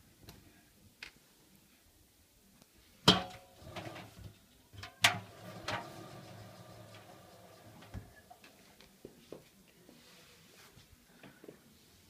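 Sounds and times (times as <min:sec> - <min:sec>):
metallic clanks of washing machine drum: 0:04.8 - 0:06.2.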